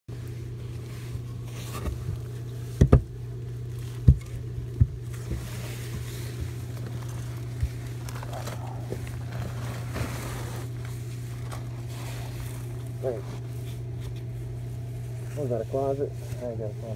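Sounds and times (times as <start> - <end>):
steady low hum: 0.1 - 16.9
protective suit rustling: 5.2 - 15.5.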